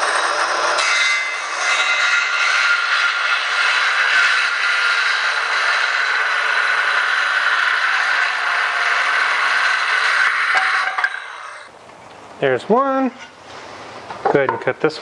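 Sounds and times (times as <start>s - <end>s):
circular saw cutting wood: 0.0s - 11.7s.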